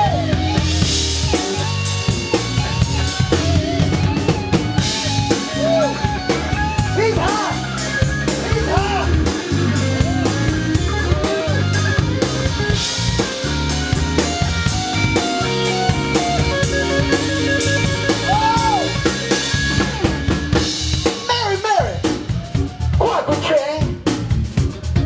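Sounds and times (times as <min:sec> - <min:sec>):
electric guitar: 0:00.0 - 0:23.0
drum kit beat: 0:00.0 - 0:25.0
electric bass line: 0:00.0 - 0:25.0
keyboard: 0:00.0 - 0:25.0.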